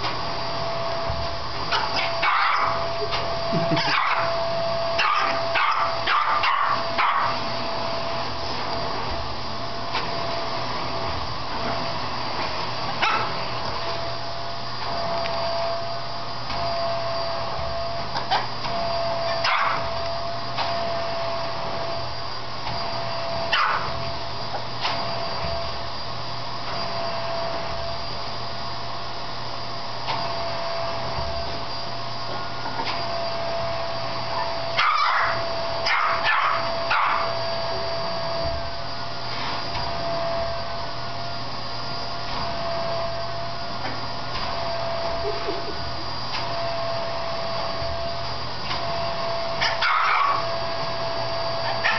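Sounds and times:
vacuum cleaner running: 0.0s - 51.9s
small dog barking and yipping: 1.7s - 2.8s, 3.8s - 4.4s, 5.0s - 7.4s, 13.0s - 13.3s, 19.3s - 19.9s, 23.5s - 23.9s, 34.4s - 37.4s, 49.6s - 50.5s, 51.6s - 51.9s.

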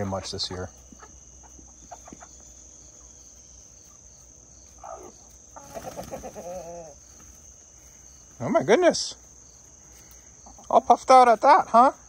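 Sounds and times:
chicken clucking: 0.0s - 7.4s, 9.6s - 11.9s
crickets chirring: 0.0s - 12.0s
chicken call: 4.8s - 7.0s.

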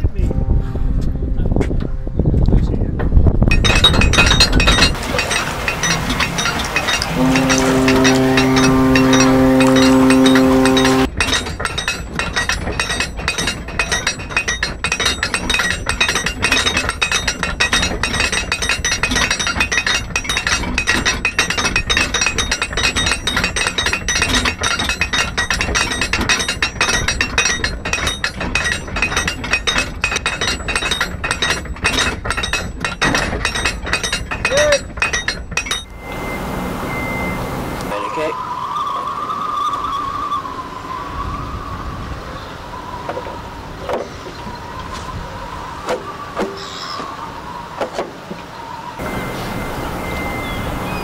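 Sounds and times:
music with held notes: 0.3s - 2.5s, 6.2s - 11.1s
windlass ratchet clicking: 3.4s - 36.2s.

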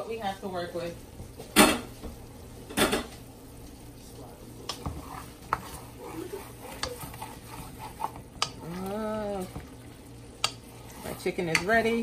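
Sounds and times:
wooden spoon scraping metal pot: 4.7s - 9.8s, 10.4s - 12.0s.

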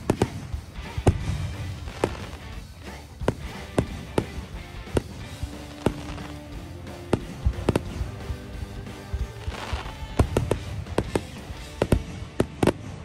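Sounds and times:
background music: 0.0s - 13.0s
fireworks bangs: 0.0s - 13.0s
fireworks crackling: 0.0s - 13.0s.

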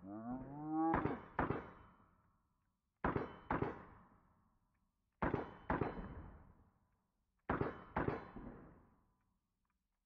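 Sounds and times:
pistol gunshots: 0.9s - 1.9s, 7.5s - 8.4s.

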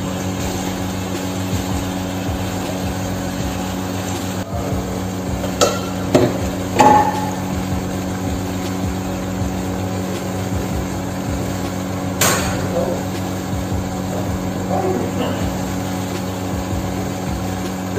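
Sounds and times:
steady low hum: 0.0s - 17.9s
metal pot lid clanks: 5.4s - 7.4s, 12.2s - 12.7s.

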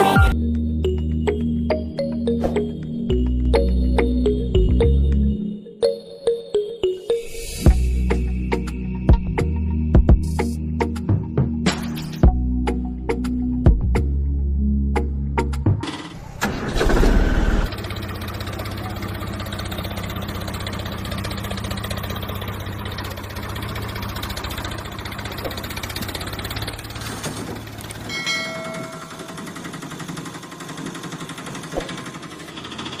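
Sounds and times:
tractor engine knocking: 15.8s - 33.0s
lighter engine with ringing tones: 28.0s - 29.9s.

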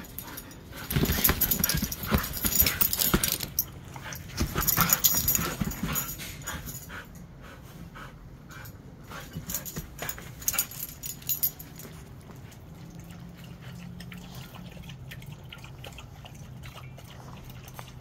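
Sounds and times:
dogs shuffling on bed: 0.0s - 6.8s.

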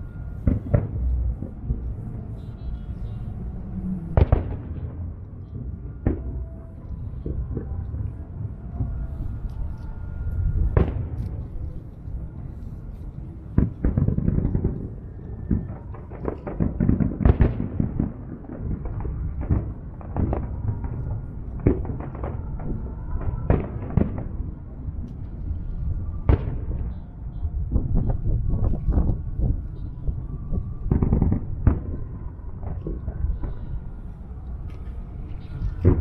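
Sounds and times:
fireworks bursting: 0.0s - 8.0s
low rumble: 0.0s - 36.0s.

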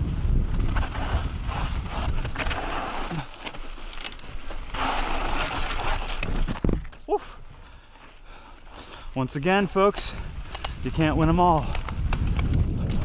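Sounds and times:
bike clattering over rocks: 1.8s - 7.1s, 9.8s - 13.0s.

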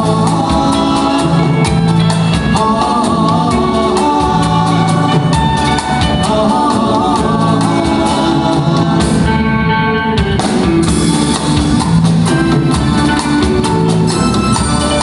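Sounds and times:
man singing into microphone: 0.0s - 9.4s
live pop band playing: 0.0s - 15.0s.

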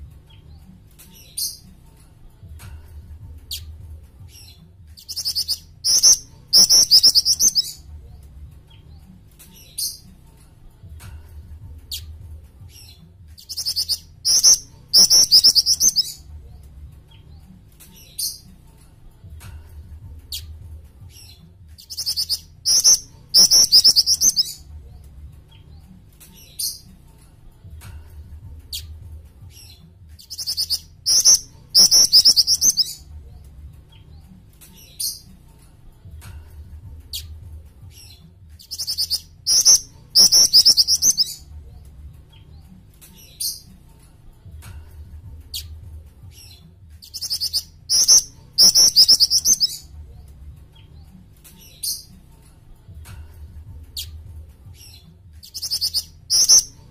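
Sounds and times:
bird singing high trills: 5.0s - 7.8s, 13.5s - 16.2s, 21.9s - 24.6s, 30.3s - 33.0s, 38.6s - 41.4s, 47.1s - 49.8s, 55.5s - 56.8s.

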